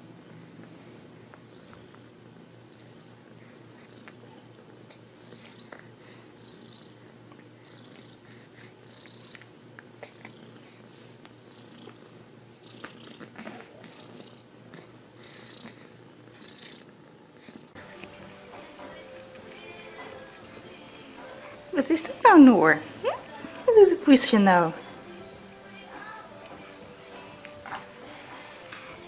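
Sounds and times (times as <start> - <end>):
cat purring: 1.5 - 22.2.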